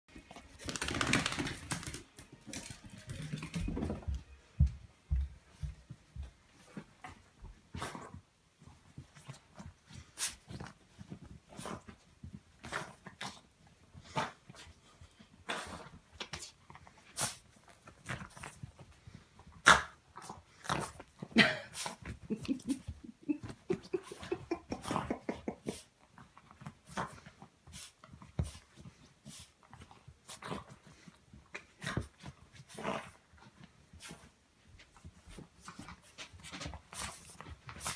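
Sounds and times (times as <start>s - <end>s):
dog claws clicking and scuffling: 0.2s - 4.1s, 15.6s - 37.9s.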